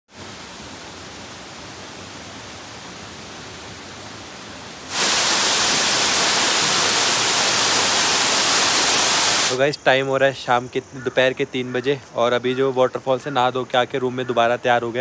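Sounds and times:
waterfall rushing: 0:00.2 - 0:09.6.

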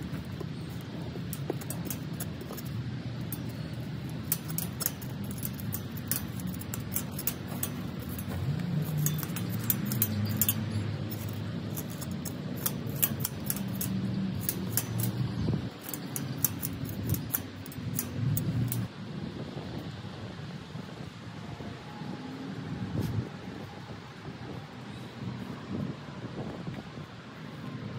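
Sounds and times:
steady low rumble: 0:00.0 - 0:21.2.

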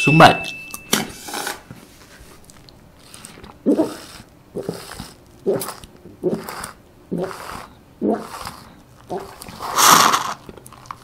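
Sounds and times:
person drinking through metal straw: 0:03.0 - 0:11.0
person swallowing gulps: 0:03.1 - 0:10.8.

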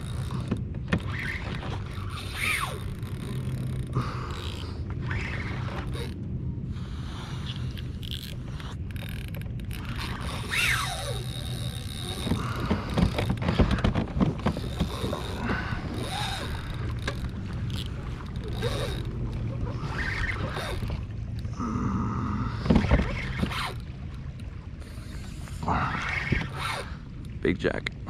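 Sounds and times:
knocks and creaks of pedal drive: 0:00.0 - 0:06.2, 0:07.5 - 0:21.5, 0:22.5 - 0:24.5
steady low hum: 0:00.0 - 0:28.0
water moving along kayak hull: 0:00.0 - 0:28.0
short sliding squeaks: 0:01.0 - 0:03.8, 0:08.1 - 0:12.3, 0:14.5 - 0:21.0, 0:23.0 - 0:23.8, 0:26.0 - 0:27.0.

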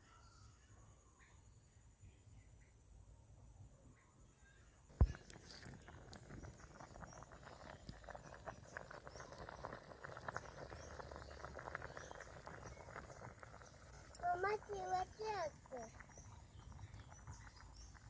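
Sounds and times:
curry bubbling in pot: 0:04.9 - 0:18.0.

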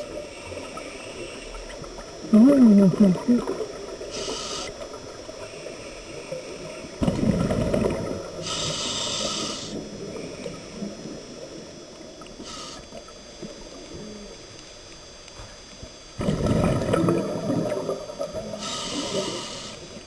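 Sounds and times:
muffled underwater background: 0:00.0 - 0:20.0
hissing regulator inhalations: 0:04.1 - 0:04.8, 0:08.4 - 0:10.8, 0:12.4 - 0:13.1, 0:18.5 - 0:20.0.

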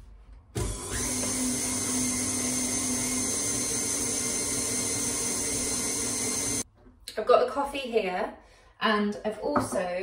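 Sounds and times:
stand mixer motor whirring: 0:00.6 - 0:06.6.

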